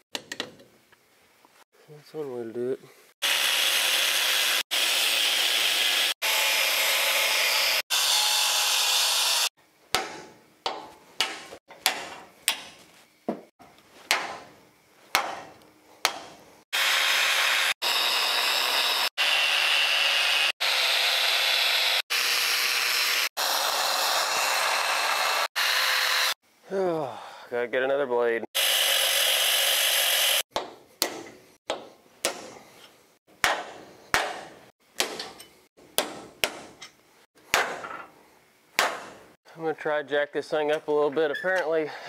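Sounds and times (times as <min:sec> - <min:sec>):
angle grinder cutting steel: 0:03.2 - 0:09.5, 0:16.8 - 0:26.4, 0:28.6 - 0:30.4.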